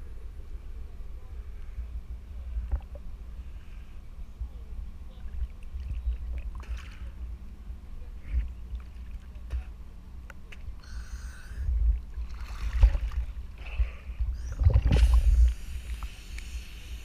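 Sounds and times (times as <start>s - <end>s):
boat low rumble: 0.0s - 17.0s
water sloshing: 5.1s - 7.3s, 11.5s - 16.1s.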